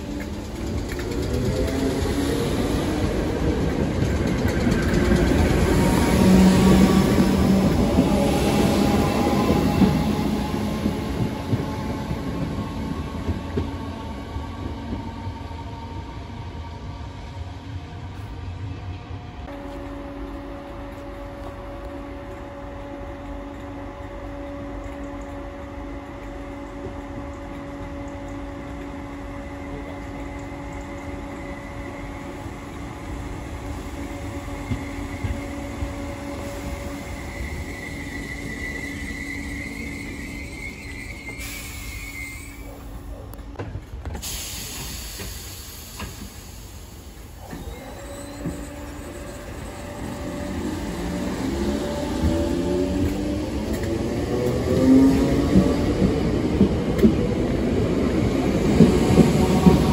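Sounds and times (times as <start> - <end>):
electric train humming: 0.0 - 59.9
train motor whine: 19.5 - 42.9, 47.1 - 56.3
train brakes squealing: 29.4 - 43.2, 44.2 - 53.8
air hiss: 41.3 - 42.6, 44.2 - 47.6.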